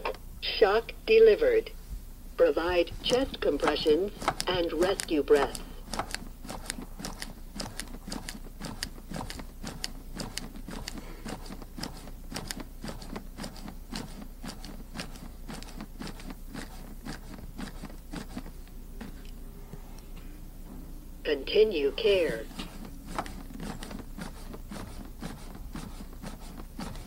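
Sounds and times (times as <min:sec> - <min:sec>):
manikin clicking under compressions: 0:02.7 - 0:18.6, 0:22.0 - 0:27.0.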